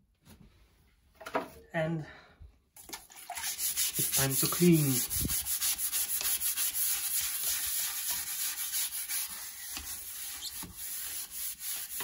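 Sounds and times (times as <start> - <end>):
toilet brush scrubbing bowl: 2.8 - 12.0.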